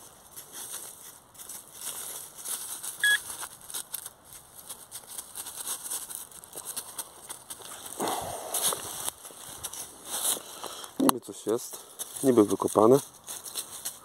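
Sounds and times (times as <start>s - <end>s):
dry leaves crackling: 0.0s - 14.0s
metal detector beep: 3.0s - 3.2s.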